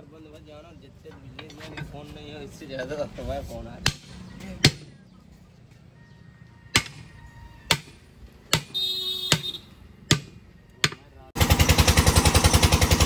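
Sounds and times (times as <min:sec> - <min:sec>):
hammer striking steel bar: 0:06.7 - 0:07.0, 0:07.7 - 0:08.7, 0:10.1 - 0:11.0.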